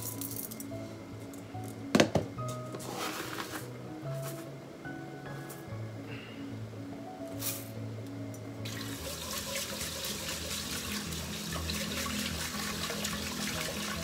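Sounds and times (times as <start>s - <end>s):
tap water running into metal pot: 8.7s - 14.0s.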